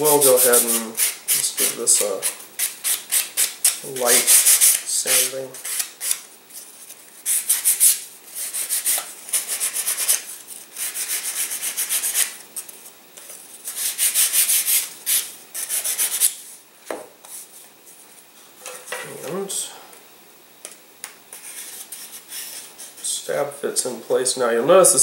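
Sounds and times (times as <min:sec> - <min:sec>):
sandpaper rubbing on wood: 0:00.0 - 0:06.2, 0:07.2 - 0:12.4, 0:13.6 - 0:16.4.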